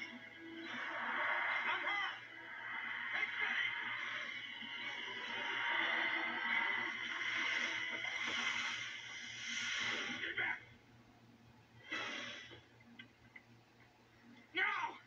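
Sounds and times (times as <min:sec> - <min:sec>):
hissing rush of noise: 0:00.0 - 0:10.4.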